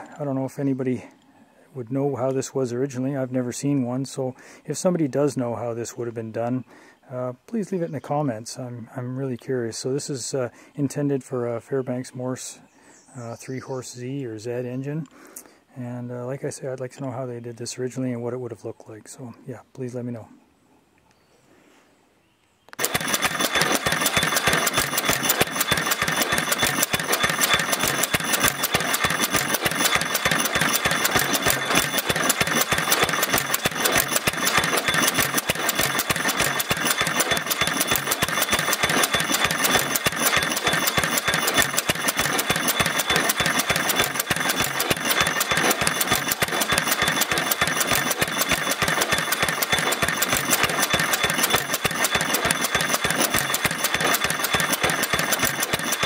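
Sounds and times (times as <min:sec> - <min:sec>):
stationary engine running: 0:22.7 - 0:56.0.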